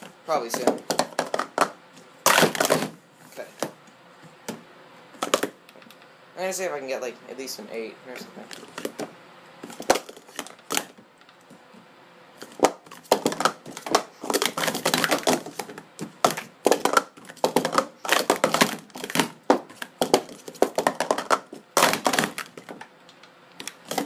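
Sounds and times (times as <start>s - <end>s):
plastic cups clattering: 0.4s - 3.0s, 12.4s - 22.8s.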